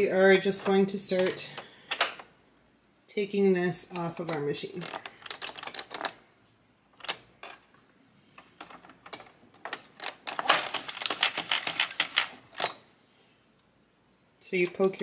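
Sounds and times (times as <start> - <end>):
knitting machine needles clicking: 3.9 - 6.2.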